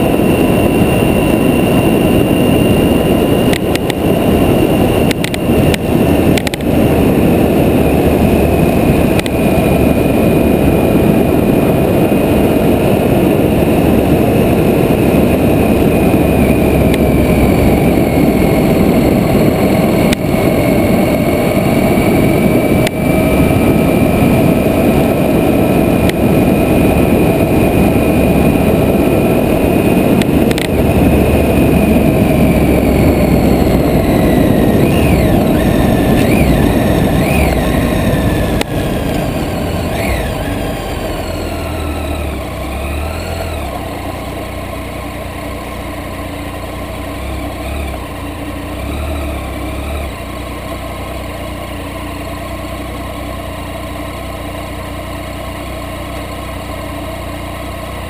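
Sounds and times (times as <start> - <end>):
wind rushing on microphone: 0.0 - 52.3
motorcycle engine cruising: 0.0 - 58.0
sharp clicks: 3.5 - 4.0, 5.0 - 6.8, 9.1 - 9.4, 30.2 - 30.8.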